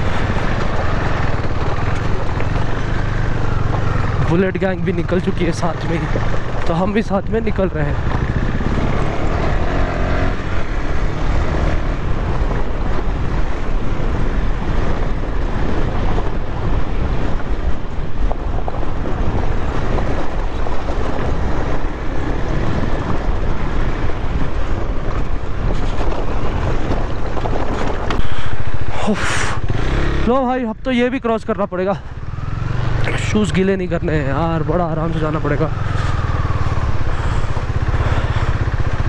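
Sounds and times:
wind rumble on microphone: 0.0 - 30.9
motorcycle engine running: 0.0 - 31.1, 31.9 - 39.0.

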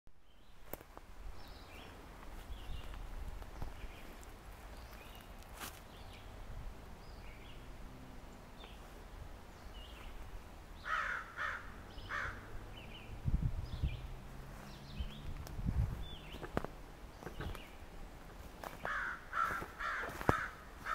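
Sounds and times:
small birds chirping: 1.4 - 20.9
footsteps on leaf litter: 2.2 - 6.0, 14.4 - 20.9
loud bird calls: 10.8 - 15.4, 16.0 - 18.0, 18.6 - 20.9.

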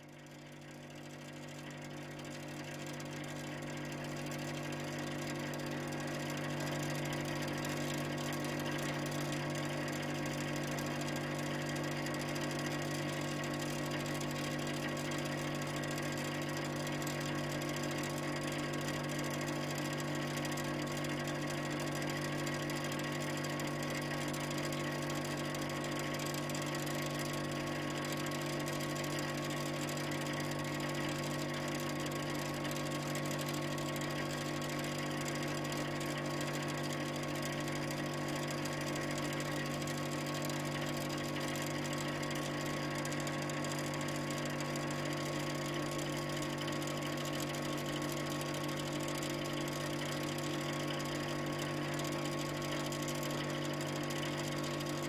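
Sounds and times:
refrigeration machine hum: 0.0 - 55.0.

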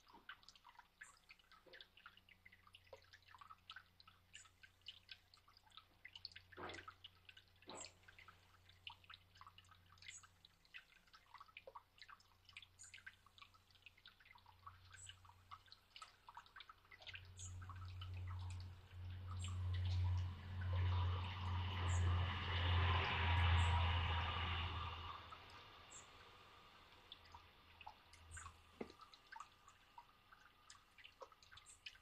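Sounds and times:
water trickling into stone basin: 0.0 - 32.0
low rumble and rustling: 17.2 - 30.0.

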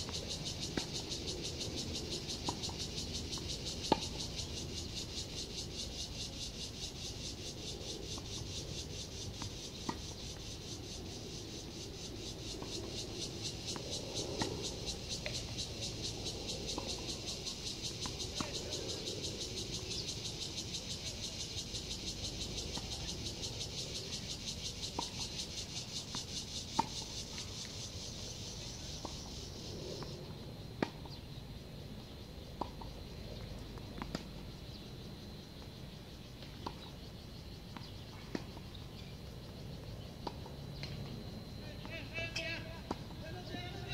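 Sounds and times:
cicadas buzzing: 0.0 - 43.9
tennis ball bouncing on court: 3.9 - 4.1.

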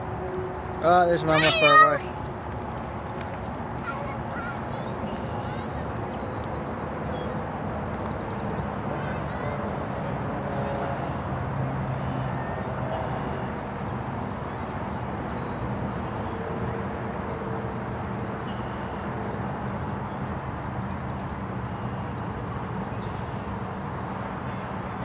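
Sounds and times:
small birds chirping: 0.0 - 10.1.

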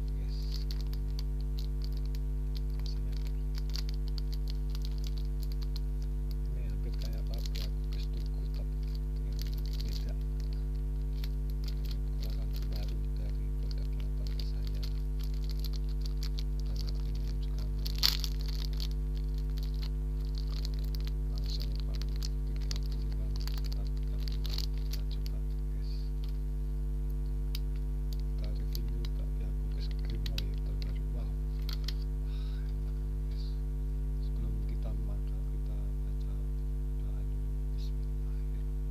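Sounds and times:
plastic bag crinkling: 0.0 - 25.4, 27.5 - 32.2
sharp plastic crackle: 0.0 - 33.4
steady electrical hum: 0.0 - 38.9.

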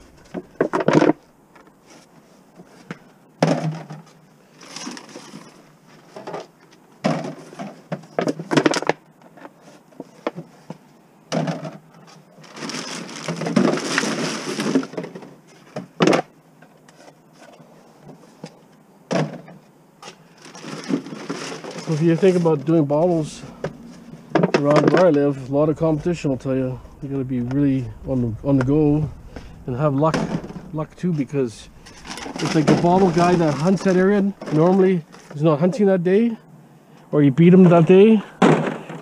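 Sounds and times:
plastic bags crinkling: 12.4 - 14.9, 20.3 - 24.8.

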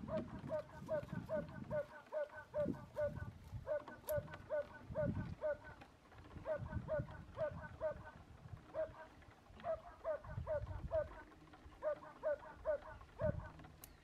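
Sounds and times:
dog yapping: 0.0 - 5.6, 6.4 - 8.0, 8.7 - 11.2, 11.8 - 13.6.

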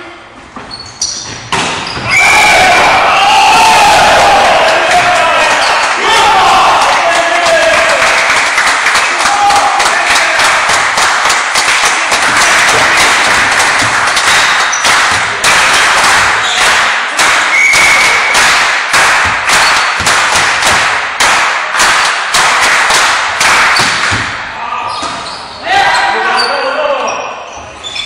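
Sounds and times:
spectators clapping: 3.5 - 24.4
loud thumps and bangs: 19.0 - 21.2, 23.6 - 24.5.

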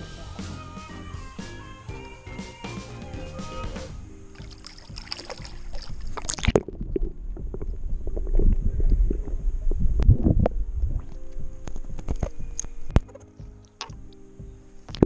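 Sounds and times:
muffled underwater rumble: 5.4 - 13.0.

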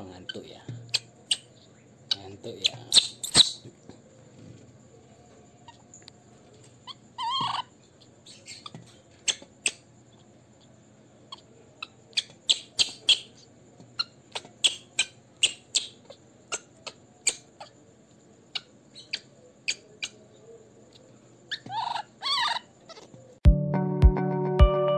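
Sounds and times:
baby monkey chirps: 0.2 - 3.7, 6.8 - 10.3, 11.3 - 17.8, 18.5 - 20.3, 20.9 - 23.1
baby monkey whining cry: 6.8 - 7.7, 21.5 - 23.1.

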